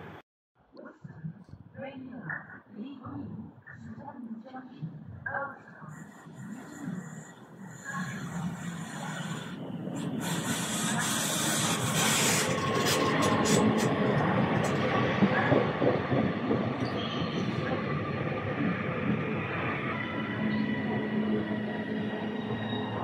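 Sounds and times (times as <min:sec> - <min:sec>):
train wheels rumbling on rails: 0:05.9 - 0:23.0.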